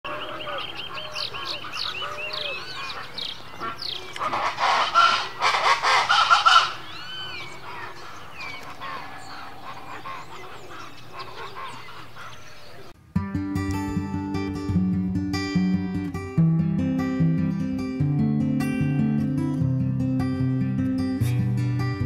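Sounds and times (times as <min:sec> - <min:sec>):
chorus of wild birds calling: 0:00.1 - 0:13.0.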